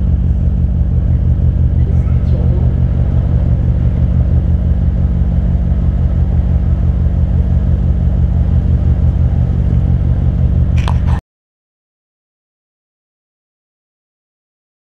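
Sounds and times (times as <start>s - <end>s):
car engine idling: 0.0s - 11.2s.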